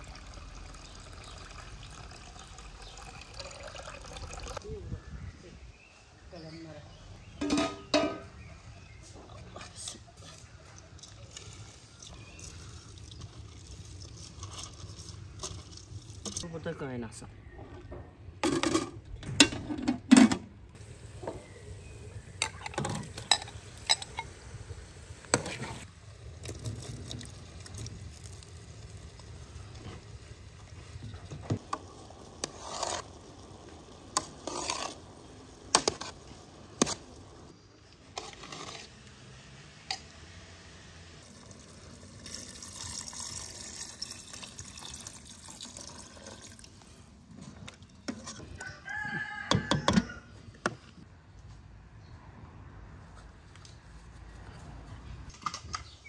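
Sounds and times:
metal pot lid clanking: 0:07.4 - 0:08.3
liquid being stirred: 0:10.2 - 0:16.4, 0:31.1 - 0:37.1
metal spoon scraping a pot: 0:22.4 - 0:24.4, 0:32.4 - 0:33.2, 0:34.1 - 0:35.1, 0:38.2 - 0:38.9.

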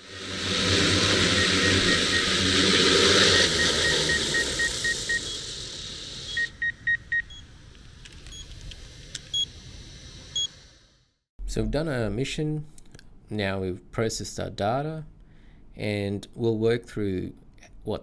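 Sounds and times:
drone rotors winding down: 0:00.0 - 0:10.9
short electronic beeps: 0:01.3 - 0:02.4, 0:03.2 - 0:05.5.

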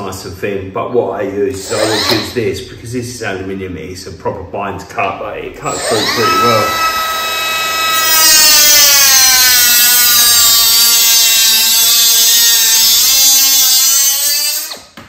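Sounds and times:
cut-off tool motor whine: 0:01.6 - 0:02.4, 0:05.6 - 0:15.0
disc grinding metal: 0:05.6 - 0:14.9.

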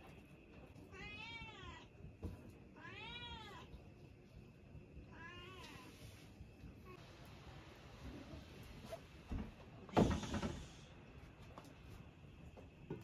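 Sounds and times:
cat meowing: 0:00.9 - 0:01.9, 0:02.8 - 0:03.7, 0:05.1 - 0:06.0.

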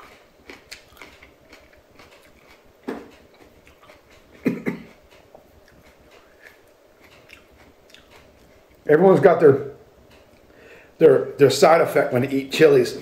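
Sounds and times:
man chewing with crunching: 0:00.0 - 0:08.9
man coughing: 0:04.4 - 0:04.9.

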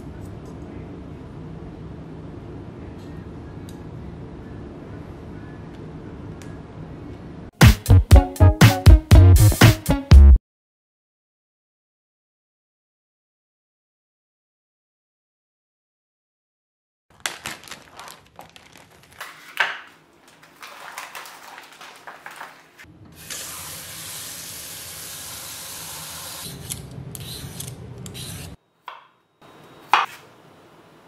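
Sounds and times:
knife chop on wooden board: 0:29.9 - 0:30.2.

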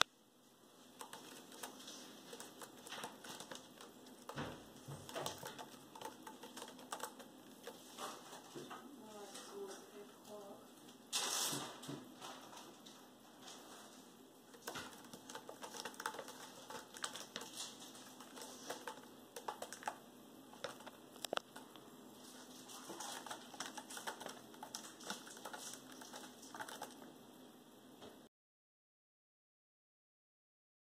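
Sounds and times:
cat clawing scratching post: 0:01.0 - 0:08.4.

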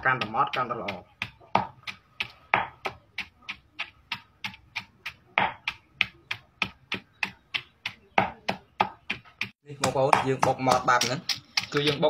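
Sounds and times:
pestle pounding in a mortar: 0:00.0 - 0:12.0.

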